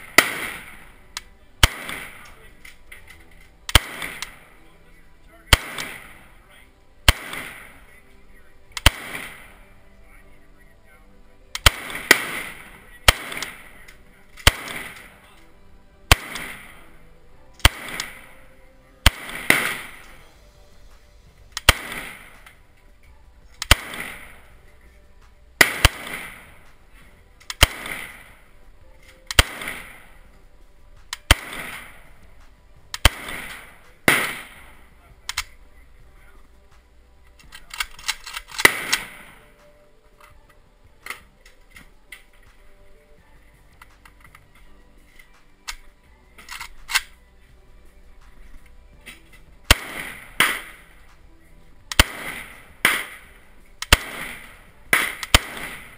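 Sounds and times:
rifle shots echoing: 0.0 - 15.4, 16.0 - 20.4, 21.5 - 22.8, 23.6 - 24.9, 25.6 - 36.5, 37.3 - 39.8, 48.3 - 51.2, 51.8 - 55.9.

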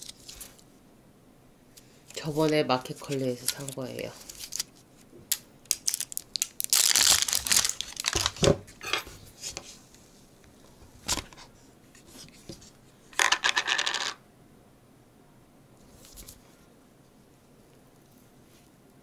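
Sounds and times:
food packaging tearing and crinkling: 0.0 - 0.6, 3.4 - 8.8.

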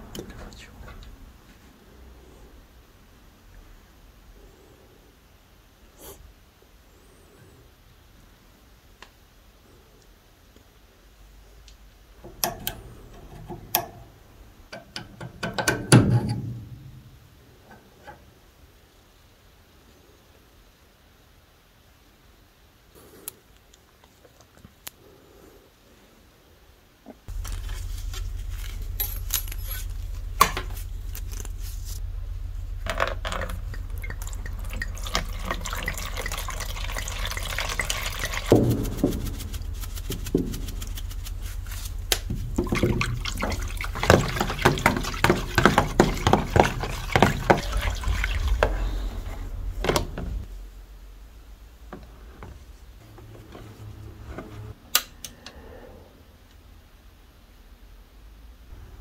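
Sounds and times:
steady low hum: 27.3 - 57.2
water swished by hand: 33.4 - 50.5.

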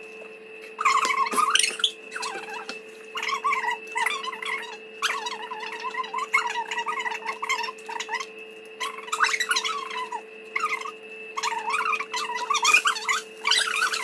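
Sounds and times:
room hum: 0.0 - 14.0.

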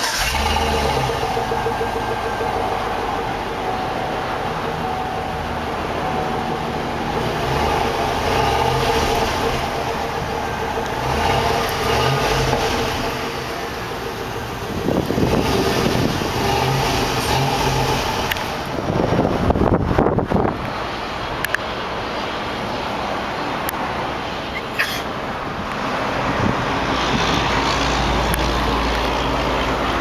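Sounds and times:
car engine revving: 0.0 - 21.2.

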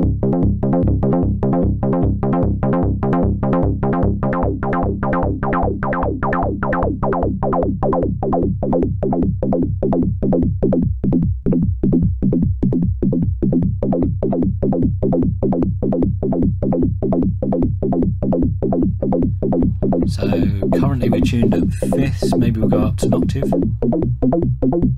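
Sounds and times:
synthesizer plucked bass sequence: 0.0 - 24.9.

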